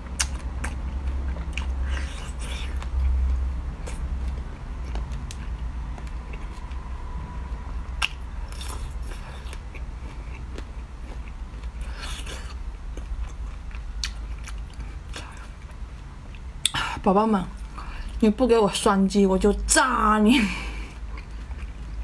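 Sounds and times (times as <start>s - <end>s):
low hum: 0.0s - 22.0s
chewing: 0.1s - 6.8s, 8.0s - 16.8s, 20.8s - 22.0s.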